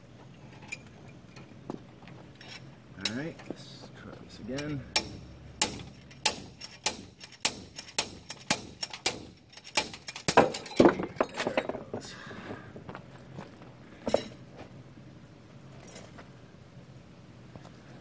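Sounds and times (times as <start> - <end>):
slide hammer metal clanks: 4.5 - 11.7
chain jingling: 4.6 - 11.5.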